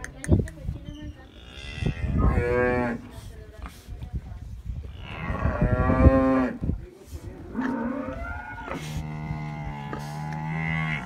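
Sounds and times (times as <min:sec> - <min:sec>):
cattle mooing: 0:07.6 - 0:11.0.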